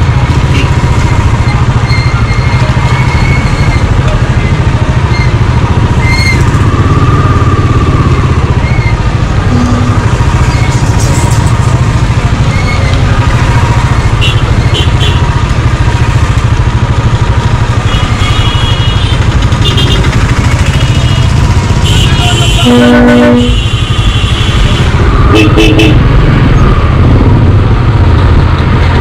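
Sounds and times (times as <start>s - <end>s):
motorcycle engine rumble: 0.0s - 29.0s
short high-pitched tones: 9.5s - 10.1s.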